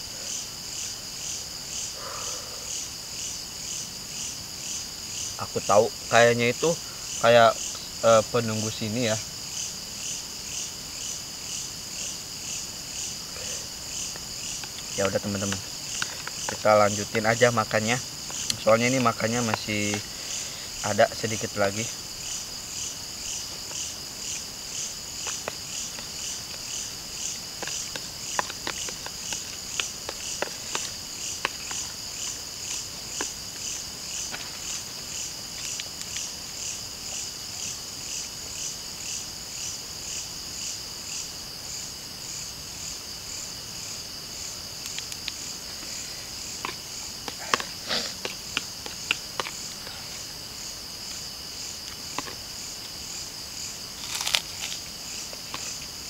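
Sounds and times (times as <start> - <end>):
night insects chirping: 0.0 - 56.0.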